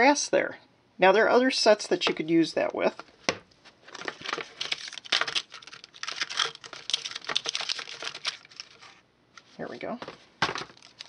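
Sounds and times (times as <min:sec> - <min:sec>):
plastic sheet crackling: 0:03.9 - 0:09.0, 0:10.4 - 0:11.0.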